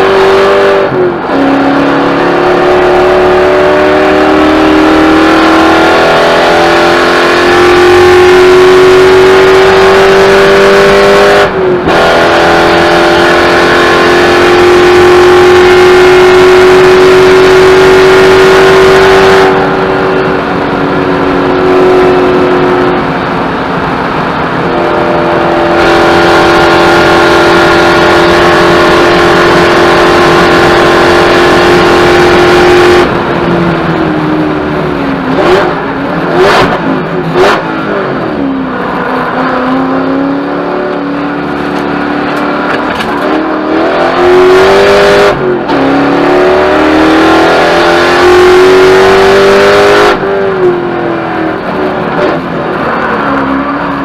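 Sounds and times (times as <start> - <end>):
car engine under hard throttle: 0.0 - 54.0
gear change: 33.0 - 44.4.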